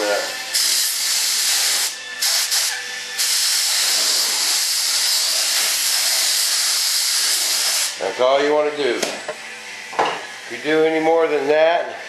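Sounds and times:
spray gun hissing: 0.0 - 8.0.

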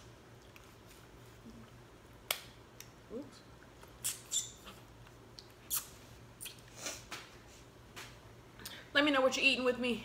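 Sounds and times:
wet mouth smacks chewing: 3.6 - 6.8.

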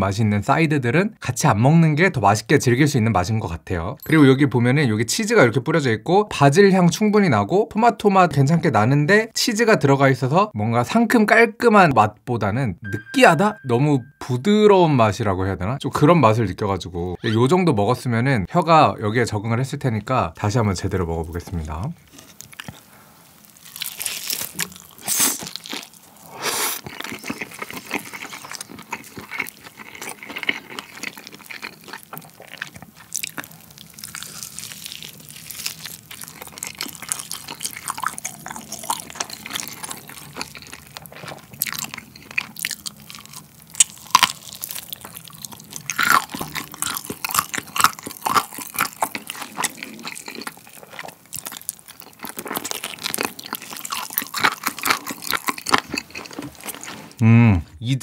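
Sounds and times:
crunchy biting and chewing: 22.0 - 57.2.

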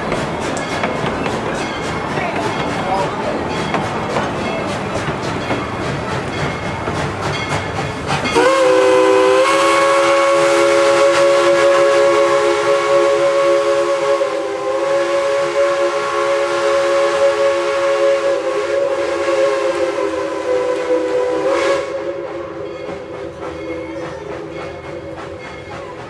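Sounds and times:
steam locomotive chime whistle: 5.4 - 26.0.

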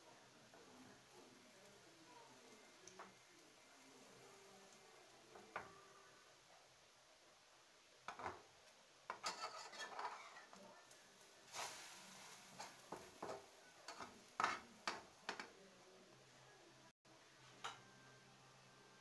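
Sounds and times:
metal spatula scraping a frying pan: 9.1 - 10.6, 13.9 - 14.7.

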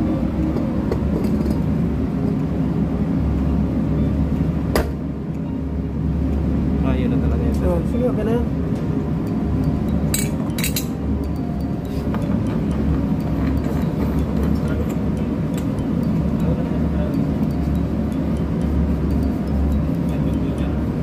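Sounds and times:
low machinery drone: 0.0 - 21.0
sharp metallic clinks: 9.3 - 20.8.

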